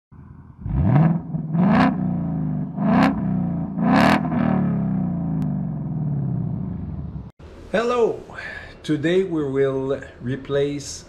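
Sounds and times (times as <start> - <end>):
car engine starting and revving: 0.5 - 7.3.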